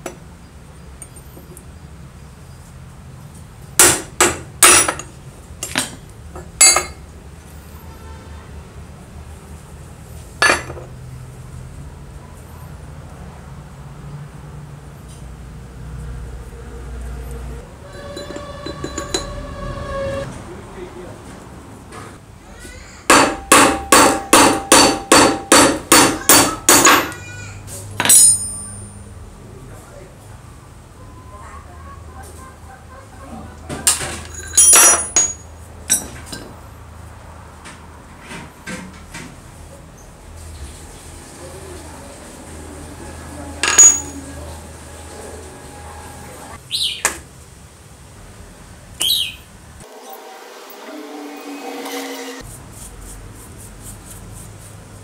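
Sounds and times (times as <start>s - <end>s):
hammer striking metal: 3.8s - 6.0s, 6.6s - 7.0s, 17.8s - 19.6s, 23.1s - 27.2s, 28.0s - 29.0s, 43.6s - 44.4s
metal parts clinking in steel bowl: 28.0s - 29.0s, 33.9s - 36.5s, 43.6s - 44.3s.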